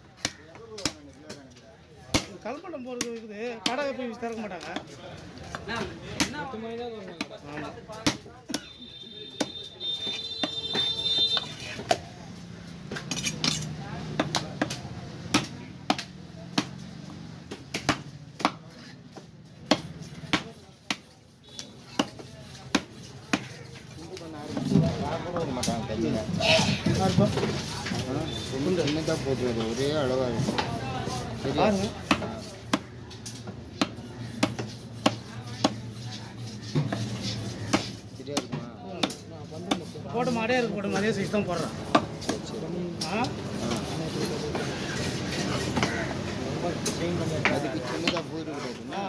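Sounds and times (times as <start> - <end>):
knife chopping on wooden block: 13.0 - 16.8, 17.5 - 23.6, 31.8 - 36.0, 36.6 - 39.9, 47.4 - 48.3.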